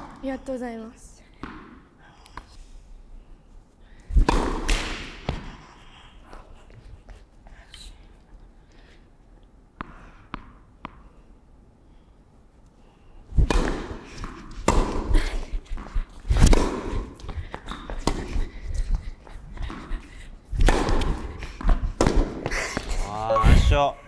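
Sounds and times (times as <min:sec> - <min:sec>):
racket striking tennis ball: 0:01.4 - 0:01.8, 0:04.1 - 0:05.6, 0:13.4 - 0:18.5, 0:20.5 - 0:22.9
tennis ball bouncing on hard court: 0:01.4 - 0:01.8, 0:04.2 - 0:05.6, 0:13.4 - 0:15.2, 0:15.8 - 0:18.4, 0:20.6 - 0:22.9.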